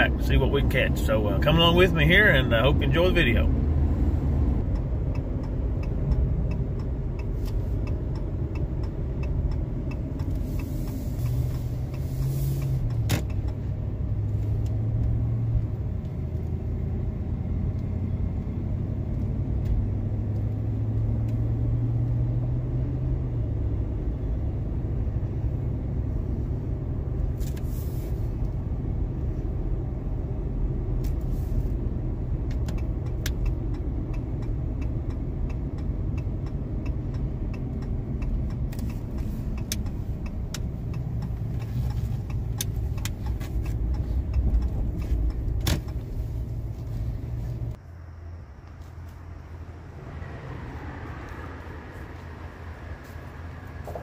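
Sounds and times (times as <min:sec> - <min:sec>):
truck engine and road rumble: 0:00.0 - 0:54.0
click: 0:32.5 - 0:46.0.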